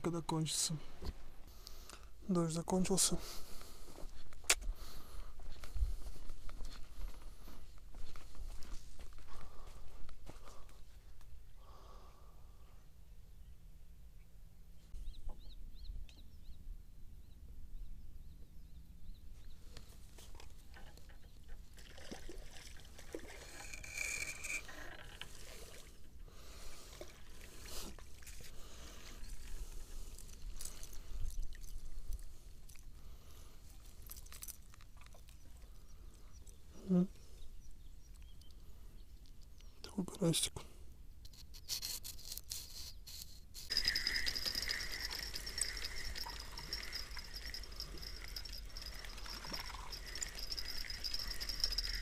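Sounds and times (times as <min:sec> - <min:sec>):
fishing reel whirring: 0:23.2 - 0:25.6, 0:41.6 - 0:52.0
handling noise rubbing on camera: 0:41.3 - 0:52.0.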